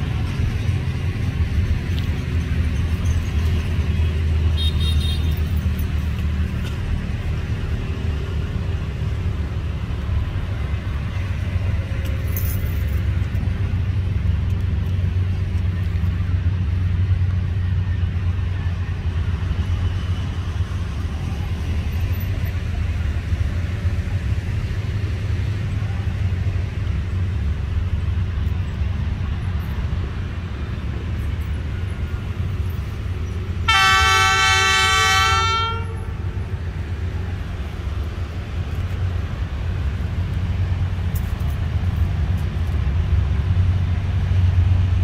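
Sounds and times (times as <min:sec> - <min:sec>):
city traffic: 0:00.0 - 0:45.0
locomotive engine rumble: 0:00.0 - 0:45.0.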